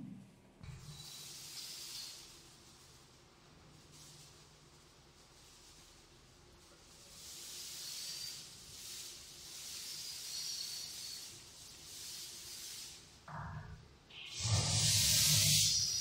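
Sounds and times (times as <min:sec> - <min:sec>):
oil hissing and sizzling in a pot: 0:00.6 - 0:13.2.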